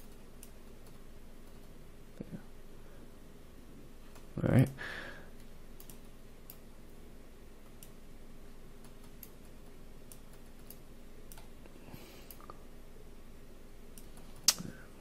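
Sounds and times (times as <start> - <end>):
computer mouse clicking: 0.0 - 1.8, 5.4 - 6.7, 7.6 - 8.0, 8.8 - 11.6, 13.9 - 14.7
low steady hum: 0.0 - 15.0.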